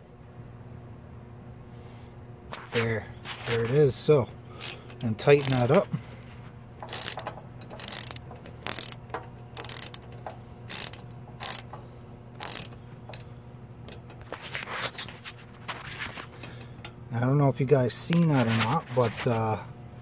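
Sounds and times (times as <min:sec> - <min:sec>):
socket ratchet clicking: 0:04.6 - 0:05.8, 0:06.8 - 0:13.3.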